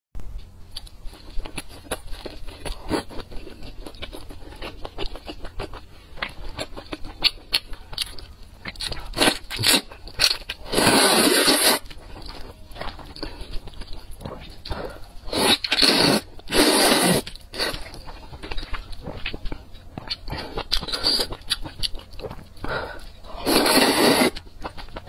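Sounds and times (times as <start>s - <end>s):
wet chewing and mouth smacks: 0.4s - 25.0s
loud slurp of noodles: 10.7s - 11.8s, 15.3s - 17.7s, 23.4s - 24.4s.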